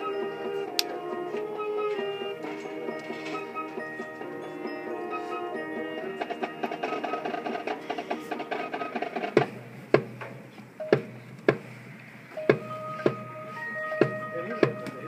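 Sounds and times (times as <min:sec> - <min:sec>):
mallet percussion notes: 0:00.0 - 0:09.0, 0:12.4 - 0:15.0
sharp percussion hits: 0:06.1 - 0:10.2, 0:12.4 - 0:15.0.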